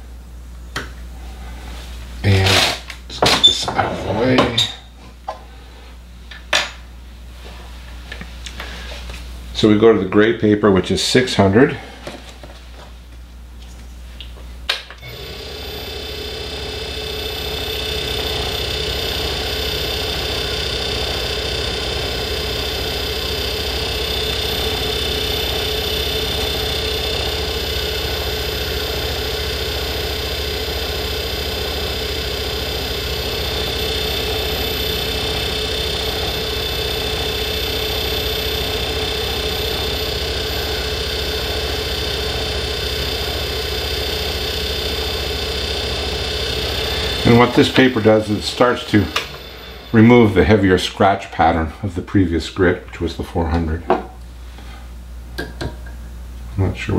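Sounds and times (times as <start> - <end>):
lathe motor whine: 15.0 - 51.2
lathe switch click: 49.1 - 49.4.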